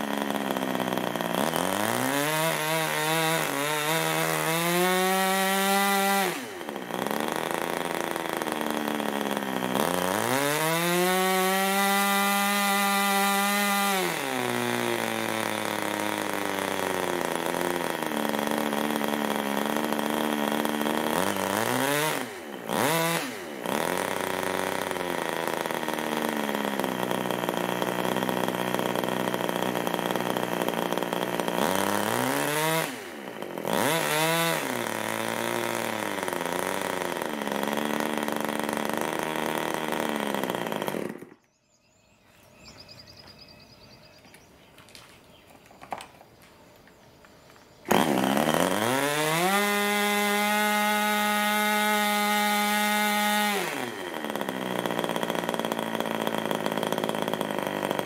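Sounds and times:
model glow engine running: 6.6s - 10.1s, 54.0s - 58.0s.

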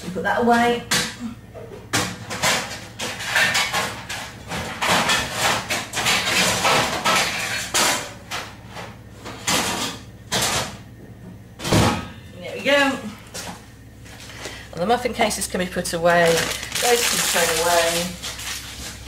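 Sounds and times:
kitchenware clattering: 1.9s - 8.6s.

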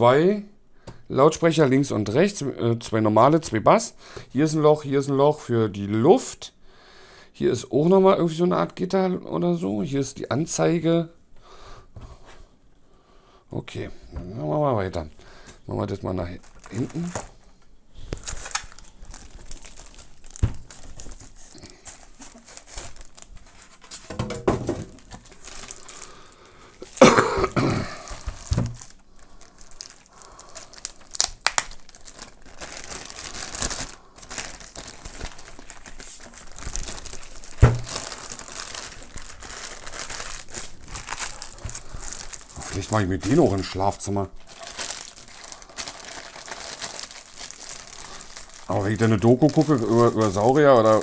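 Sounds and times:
plastic wrapping crinkling: 14.8s - 51.0s
dull knocks of cabinet moving: 24.1s - 25.0s.

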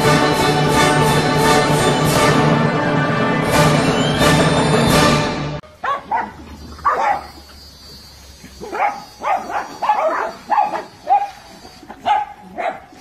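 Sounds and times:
small dogs barking: 5.7s - 7.6s, 8.4s - 13.0s.

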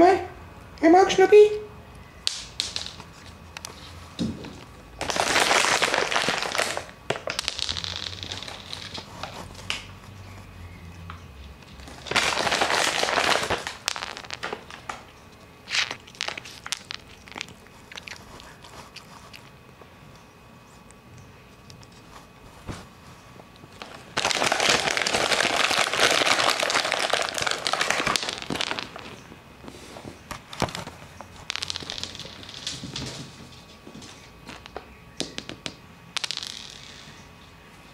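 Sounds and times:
plastic bag crinkling: 5.0s - 9.2s, 11.8s - 15.0s, 15.7s - 19.4s, 23.7s - 29.3s
small clicks and crunches: 5.0s - 9.9s, 11.1s - 19.6s, 23.4s - 29.3s.

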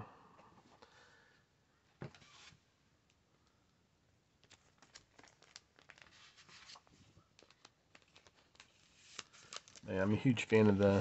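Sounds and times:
paper rustling and crinkling: 4.4s - 11.0s.

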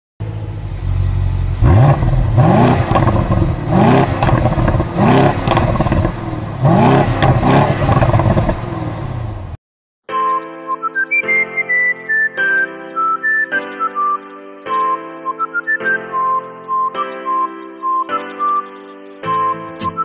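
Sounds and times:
car engine idling and revving: 0.2s - 9.6s.

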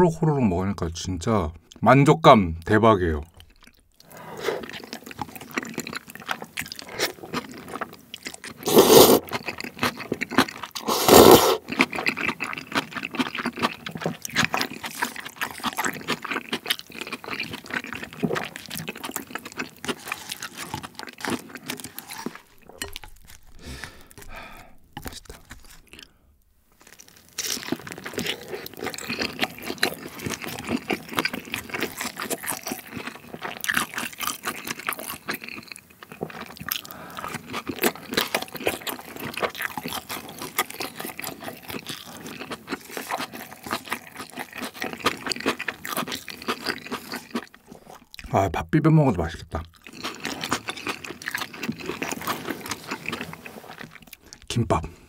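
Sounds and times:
wet chewing with crunching: 3.3s - 48.4s, 49.5s - 54.5s
loud slurps: 8.6s - 9.3s, 10.8s - 11.6s.

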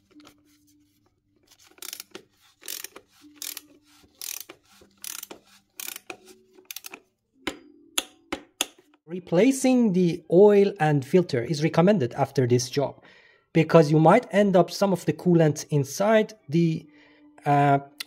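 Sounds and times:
ratchet wrench clicking: 1.6s - 7.0s.

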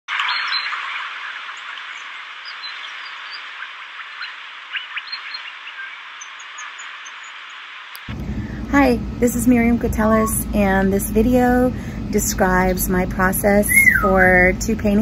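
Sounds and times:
birds chirping: 0.1s - 8.1s, 9.9s - 11.0s, 13.6s - 14.6s.

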